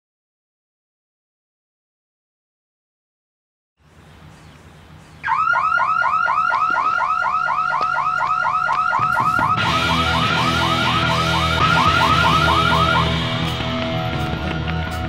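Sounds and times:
electronic alarm siren warbling: 5.2 - 15.0
music: 9.0 - 15.0.

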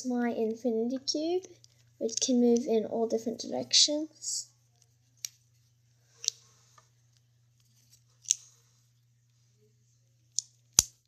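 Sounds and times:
plastic blocks snapping together: 10.3 - 11.0.

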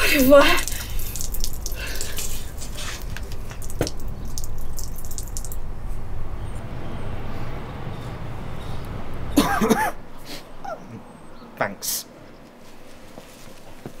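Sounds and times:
water splashing from watering can: 0.0 - 5.6.

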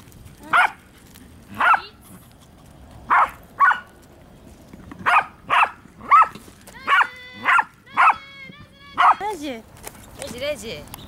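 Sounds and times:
dog barking: 0.5 - 0.8, 1.6 - 1.9, 3.1 - 3.9, 5.0 - 8.2, 9.0 - 9.3.

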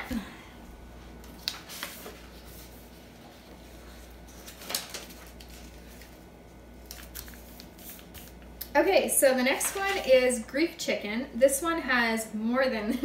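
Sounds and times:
low steady hum: 0.0 - 13.0
taps and rustles of papers: 1.2 - 3.6, 4.3 - 6.2, 6.8 - 8.5, 9.5 - 10.1.

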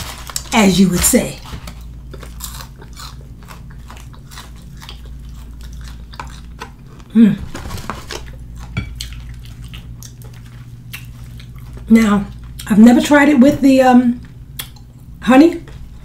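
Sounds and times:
crunching fried chicken: 0.0 - 12.7
steady low hum: 0.0 - 16.0
wet chewing: 1.4 - 12.8.

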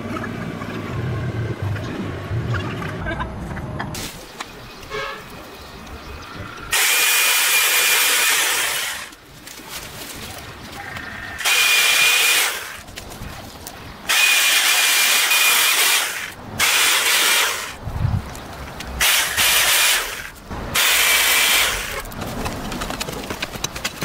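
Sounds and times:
electric chainsaw cutting roots: 6.7 - 9.2, 11.4 - 12.9, 14.1 - 17.8, 19.0 - 22.1.

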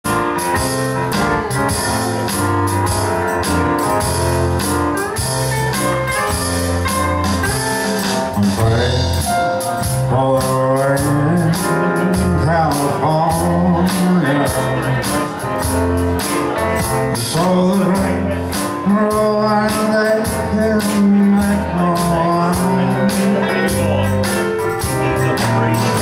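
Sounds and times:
keyboard: 0.0 - 26.0
live band playing: 0.0 - 26.0
steady drum beat: 0.0 - 26.0
electric guitar: 0.1 - 26.0
man singing lead: 8.3 - 15.5, 16.4 - 26.0.

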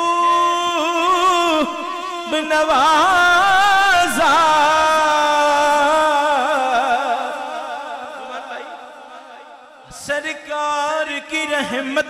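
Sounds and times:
man singing through a microphone: 0.0 - 12.0.

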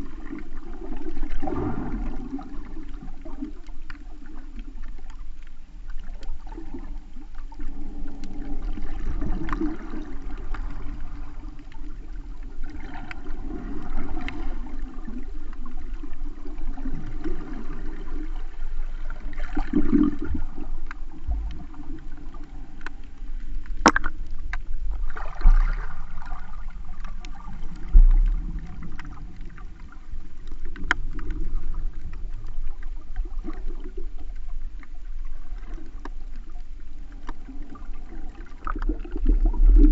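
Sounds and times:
muffled underwater water rushing: 0.0 - 39.9.

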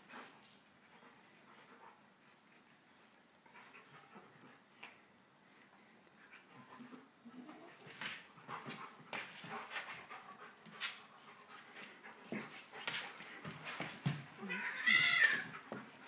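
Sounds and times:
dog panting and snuffling: 6.2 - 14.4.

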